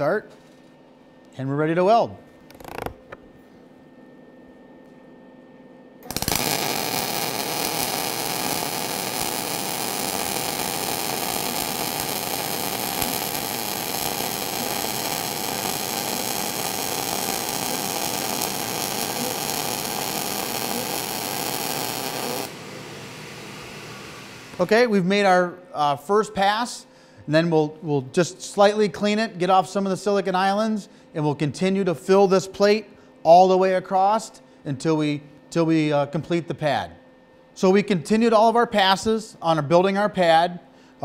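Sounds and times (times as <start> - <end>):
welding arc crackling hiss: 6.0 - 24.9.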